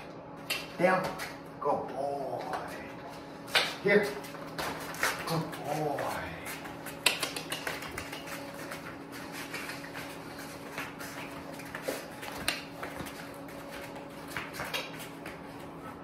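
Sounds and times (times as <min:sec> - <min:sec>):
steady low hum: 0:00.0 - 0:16.0
paws clicking on hard floor: 0:02.4 - 0:16.0
footsteps on hard floor: 0:07.7 - 0:15.8.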